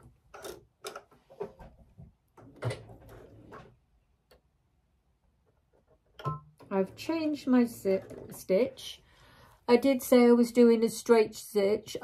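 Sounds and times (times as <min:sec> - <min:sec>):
small clicks and knocks: 0:00.0 - 0:03.6.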